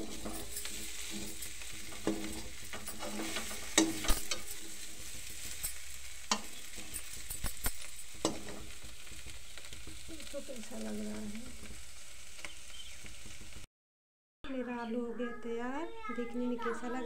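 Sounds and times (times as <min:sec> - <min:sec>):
spatula scraping pan: 0:00.0 - 0:13.6
potatoes sizzling in oil: 0:00.0 - 0:13.7.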